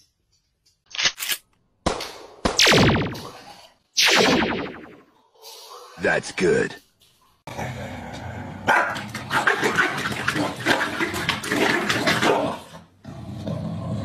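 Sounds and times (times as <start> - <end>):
dogs barking and snarling: 7.6 - 13.0.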